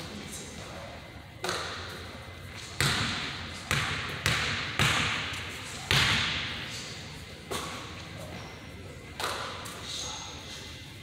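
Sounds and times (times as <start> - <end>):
basketball bouncing on wooden floor: 2.8 - 5.3.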